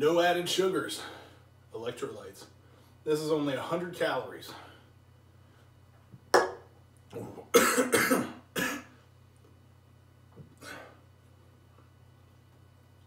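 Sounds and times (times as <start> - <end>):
man clearing his throat: 7.1 - 8.9
man coughing: 7.2 - 8.9.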